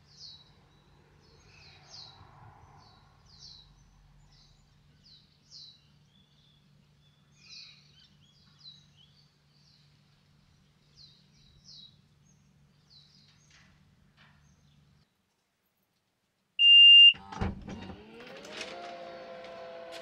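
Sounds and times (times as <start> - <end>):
high electronic beep: 16.6 - 17.2
motor whine: 17.7 - 20.0.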